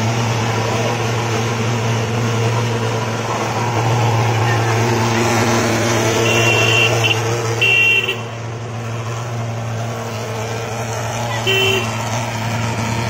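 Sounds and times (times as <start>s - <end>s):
vehicle horn toots: 6.1s - 8.4s, 11.3s - 12.0s.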